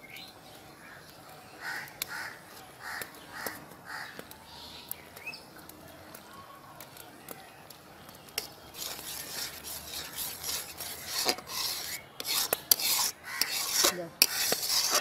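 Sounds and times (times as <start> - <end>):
bird chirp: 0.0 - 6.5
crow cawing: 1.6 - 4.2, 13.2 - 13.6.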